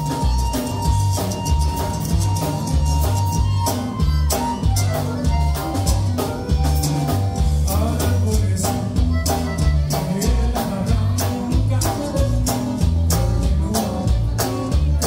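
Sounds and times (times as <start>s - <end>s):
button accordion melody: 0.0s - 15.0s
drum kit beat: 0.0s - 15.0s
electric bass: 0.0s - 15.0s
guitar: 0.0s - 15.0s
man singing: 7.1s - 15.0s.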